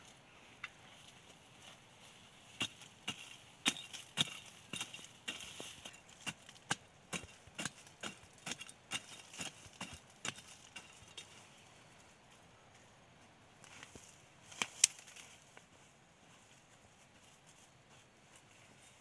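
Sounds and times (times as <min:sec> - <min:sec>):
machete chopping into soil: 0:02.6 - 0:11.0.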